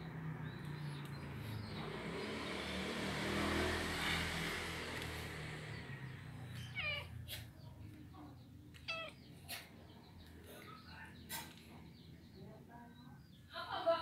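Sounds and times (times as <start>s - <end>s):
vehicle engine passing by: 0.0s - 8.3s.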